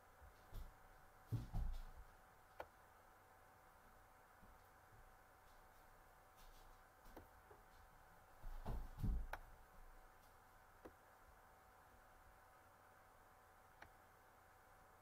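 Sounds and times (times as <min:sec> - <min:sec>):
faint steady hum: 0:00.0 - 0:15.0
soft low thumps: 0:00.5 - 0:02.1, 0:08.4 - 0:09.6.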